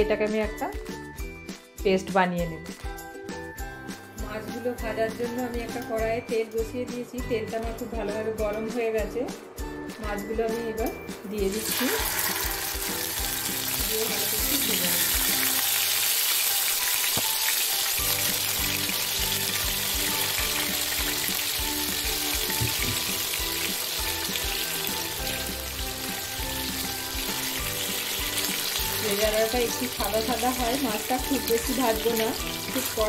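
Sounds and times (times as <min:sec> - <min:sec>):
fish sizzling in oil: 0:11.5 - 0:33.0.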